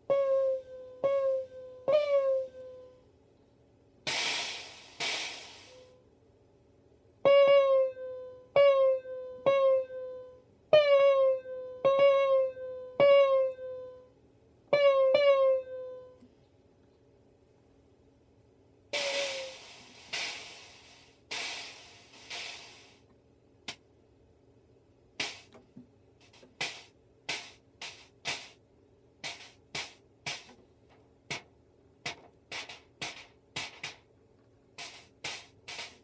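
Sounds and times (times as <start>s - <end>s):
electronic drum hits: 4.1s - 5.6s, 29.2s - 30.6s, 32.1s - 34.0s, 34.8s - 36.0s.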